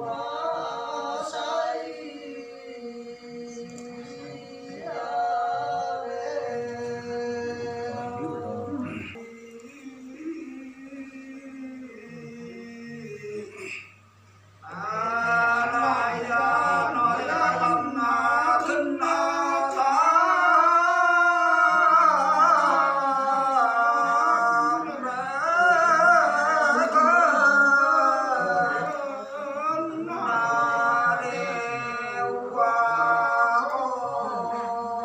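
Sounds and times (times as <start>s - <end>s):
man singing unaccompanied: 0.0s - 13.9s, 14.6s - 35.0s.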